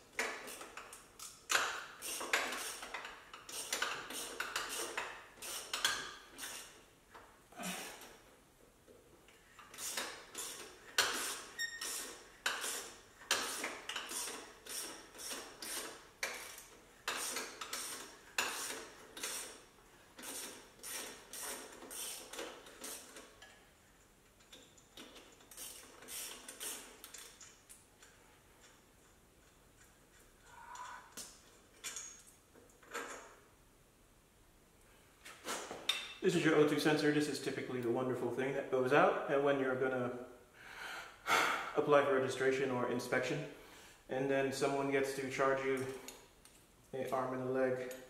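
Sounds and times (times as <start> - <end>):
ratchet wrench clicking: 0.2 - 6.8, 9.6 - 19.6, 20.2 - 23.2, 25.3 - 27.6.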